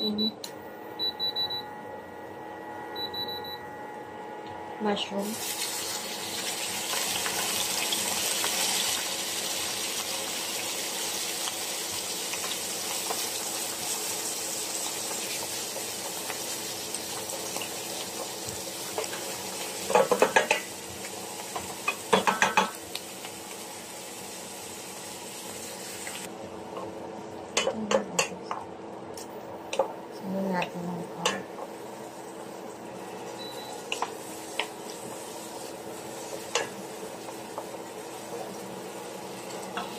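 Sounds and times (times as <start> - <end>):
vegetables sizzling in a pan: 5.2 - 26.3, 31.0 - 39.9
spoon knocking against pan: 19.9 - 20.7, 21.6 - 22.8.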